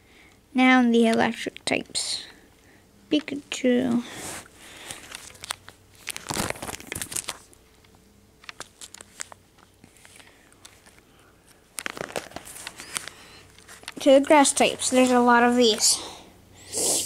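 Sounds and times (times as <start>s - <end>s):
plastic sleeve pages crinkling: 4.8s - 7.6s, 8.4s - 16.0s.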